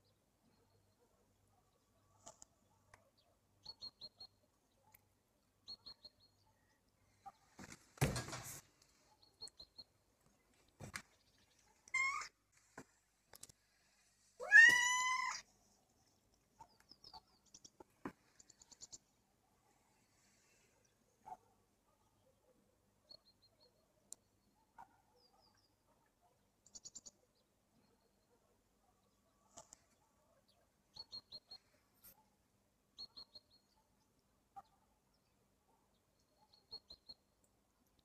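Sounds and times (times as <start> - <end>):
cat meowing: 14.4 - 15.4.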